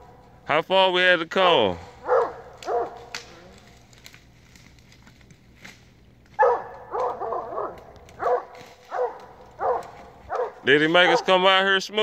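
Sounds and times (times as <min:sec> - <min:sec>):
brush crackling and snapping: 0:01.9 - 0:11.6
dog barking: 0:02.0 - 0:03.1, 0:06.4 - 0:11.5.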